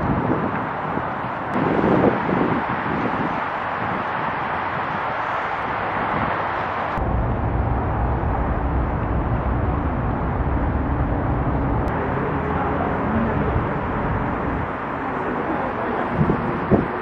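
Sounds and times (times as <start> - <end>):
wind rumble on microphone: 0.0 - 17.0.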